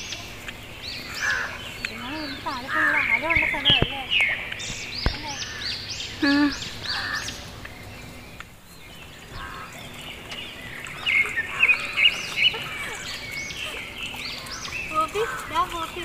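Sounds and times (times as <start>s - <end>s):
birds calling and chirping: 0.0s - 16.0s.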